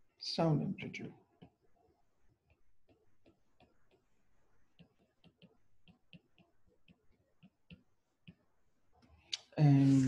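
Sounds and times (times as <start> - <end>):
stylus tapping on tablet: 2.4 - 9.1.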